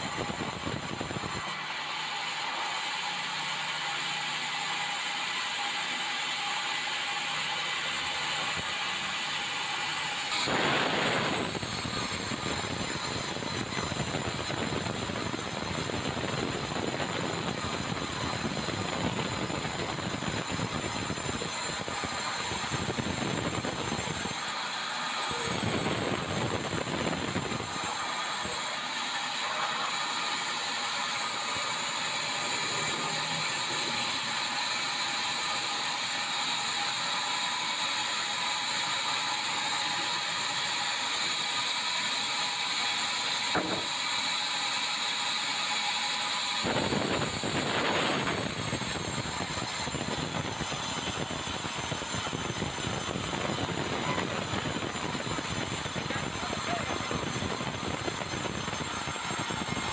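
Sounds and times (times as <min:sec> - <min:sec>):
low machine noise: 0:00.0 - 0:59.9
band saw blade cutting wood: 0:08.3 - 0:15.9, 0:27.5 - 0:59.9.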